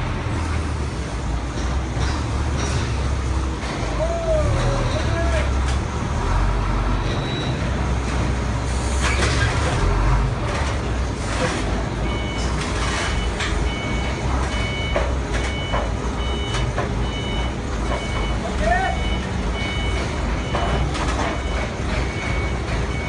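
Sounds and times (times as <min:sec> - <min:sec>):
vehicle engine low rumble: 0:00.0 - 0:23.0
knocks and clatter: 0:01.4 - 0:04.0, 0:09.0 - 0:18.4, 0:19.6 - 0:23.0
reversing alarm beeping: 0:06.9 - 0:07.9, 0:12.0 - 0:23.0.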